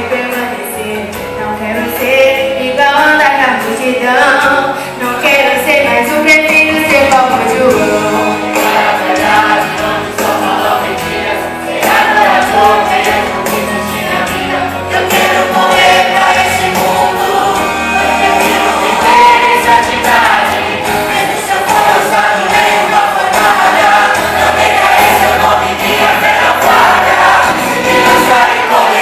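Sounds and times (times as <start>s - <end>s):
choir singing gospel song: 4.4s - 29.0s
instrumental accompaniment: 5.8s - 29.0s.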